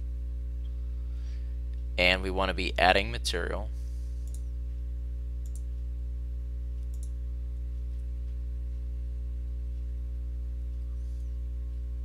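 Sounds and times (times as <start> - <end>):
steady low hum: 0.0 - 12.0
computer mouse double click: 6.9 - 7.1.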